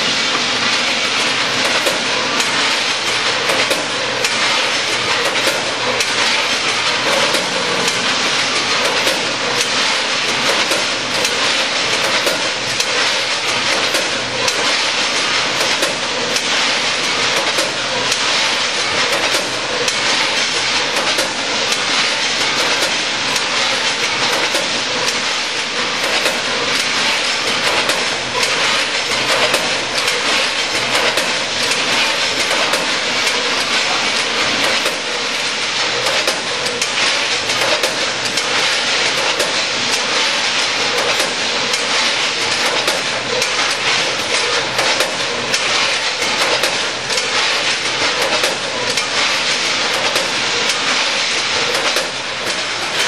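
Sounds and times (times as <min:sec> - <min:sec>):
packaging machine clatter: 0:00.7 - 0:53.0
sharp clicks and knocks: 0:01.6 - 0:53.0.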